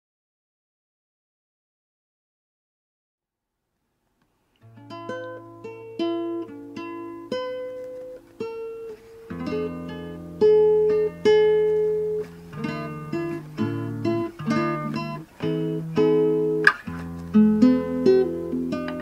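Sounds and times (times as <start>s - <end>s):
acoustic guitar: 4.5s - 19.0s.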